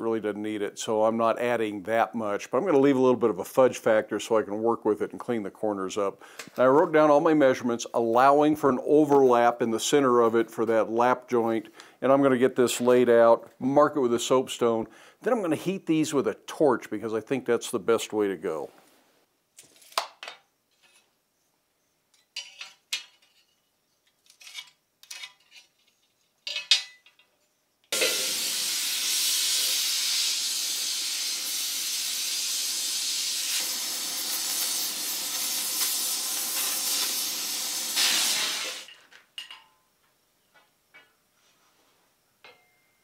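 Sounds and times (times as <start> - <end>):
gas torch flame hissing: 28.0 - 39.0.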